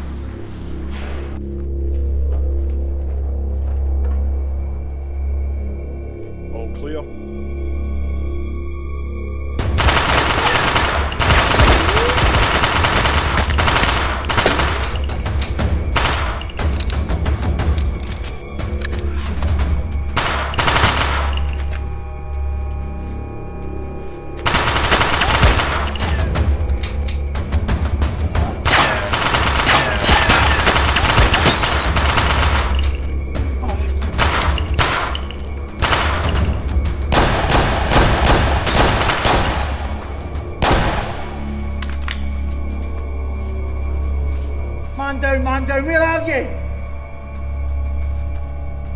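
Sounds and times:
background music: 0.0 - 48.9
automatic gunfire: 9.8 - 15.0, 16.0 - 16.4, 20.2 - 21.3, 24.5 - 26.3, 28.7 - 32.8, 35.8 - 36.5, 37.1 - 39.8.

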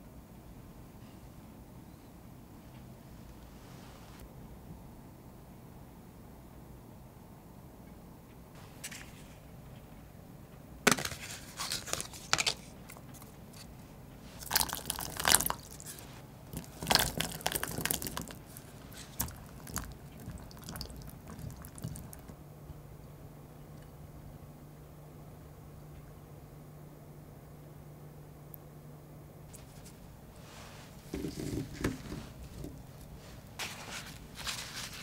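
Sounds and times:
berries knocking together: 10.9 - 13.3, 14.4 - 22.3
splashing water in bowl: 14.4 - 22.3.

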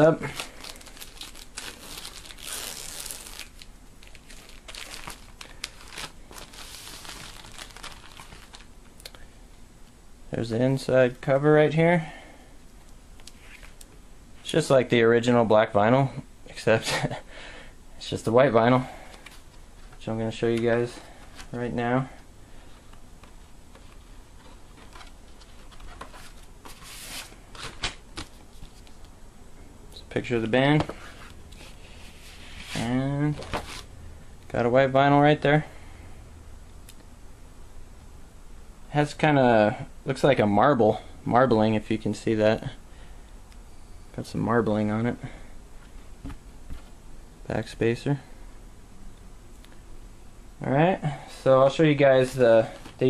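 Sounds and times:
paper and cardboard rustling: 0.0 - 8.7, 22.8 - 29.1, 30.8 - 33.9
plastic wrap crinkling and tearing: 0.0 - 8.7.

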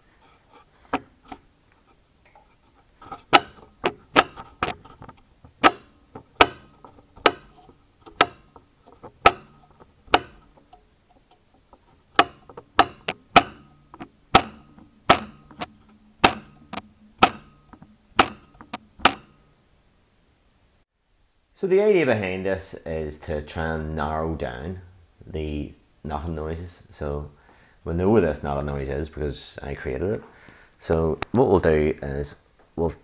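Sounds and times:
drop link knocking: 3.0 - 19.5.

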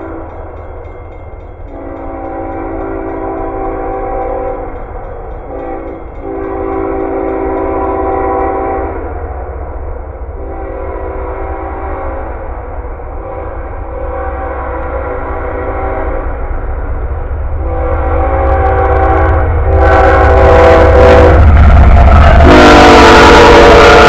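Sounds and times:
train air horn blasts: 0.0 - 0.3, 1.7 - 9.2, 10.3 - 12.5, 13.1 - 16.4, 17.6 - 24.0
low rumble of train: 0.0 - 24.0.

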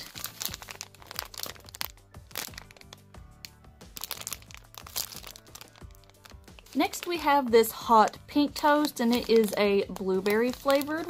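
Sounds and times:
plastic bag crinkling: 0.0 - 7.4, 8.0 - 11.0
soft background music: 0.0 - 11.0.

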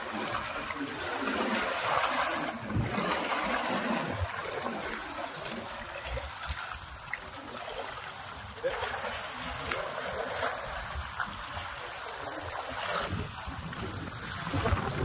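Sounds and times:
sea water lapping on rocks: 0.0 - 15.0
wind buffeting microphone: 12.4 - 15.0.

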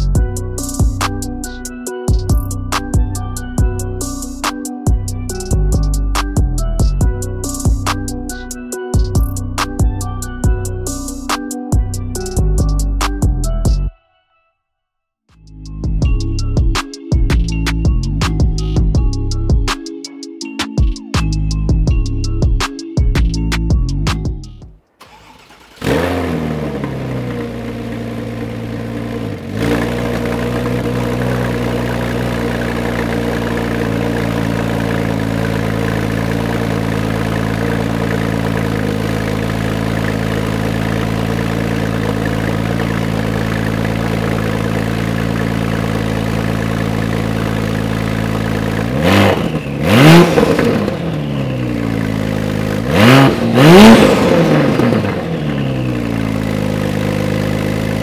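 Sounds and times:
car engine starting: 24.8 - 58.0
car engine idling: 25.0 - 58.0
car engine revving: 25.0 - 58.0.

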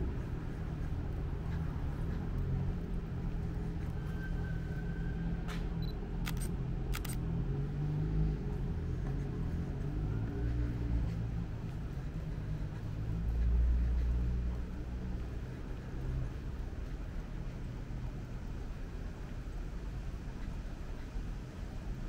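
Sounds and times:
vehicle passing: 0.0 - 17.0
city traffic rumble: 0.0 - 22.0.

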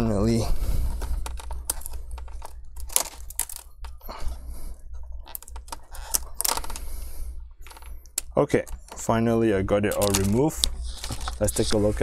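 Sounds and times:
plastic bezel clicking and crackling: 1.0 - 4.0, 5.2 - 6.8, 9.9 - 11.5.

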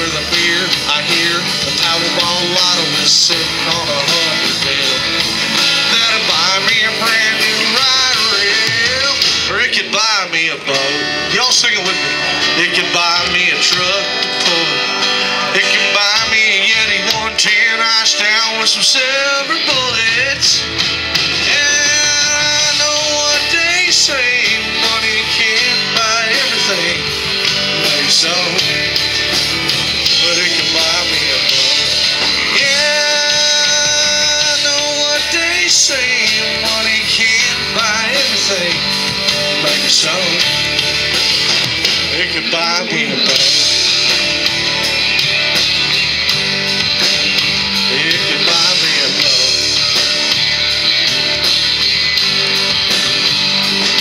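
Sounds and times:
man singing into a microphone: 0.0 - 20.8, 21.4 - 29.0, 30.0 - 40.8, 42.0 - 43.8, 47.8 - 49.9
acoustic guitar: 0.0 - 54.0
country-rock band playing: 0.0 - 54.0
drums with steady beat: 0.0 - 54.0
electric guitars: 0.0 - 54.0.

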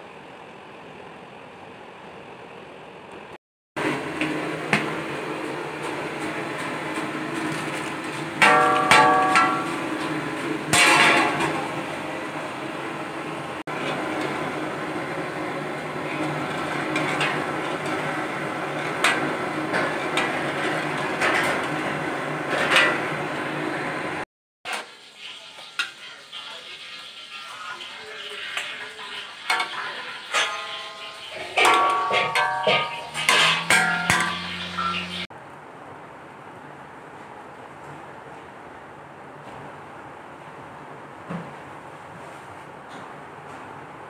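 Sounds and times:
milk boiling in metal pan: 3.8 - 35.3
ladle scraping metal pan: 29.0 - 35.3.

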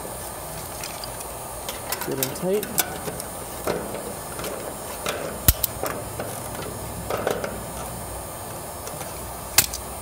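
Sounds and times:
sharp metallic click: 2.0 - 6.0.

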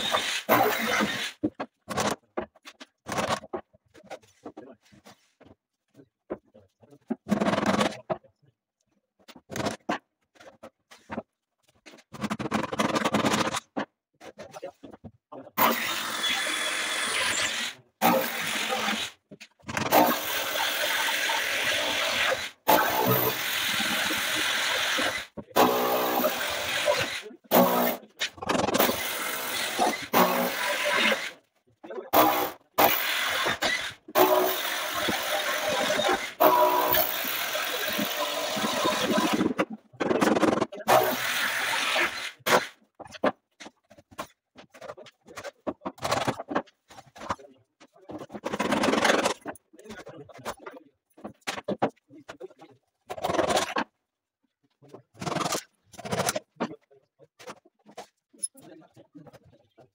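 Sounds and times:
electric drill running: 15.6 - 19.1, 28.8 - 31.3, 32.2 - 39.4, 40.9 - 42.4.

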